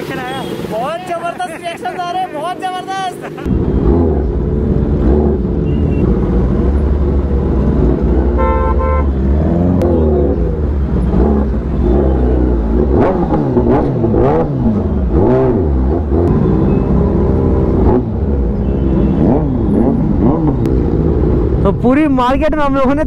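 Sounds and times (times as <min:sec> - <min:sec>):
motorcycle engine revving: 0:03.3 - 0:21.7
vehicle horn tooting: 0:08.4 - 0:09.2.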